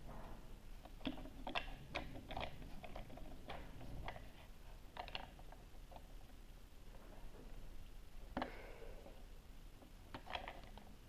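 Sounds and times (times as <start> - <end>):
plastic toy parts clicking: 0.8 - 4.3, 4.9 - 6.1, 10.1 - 10.9.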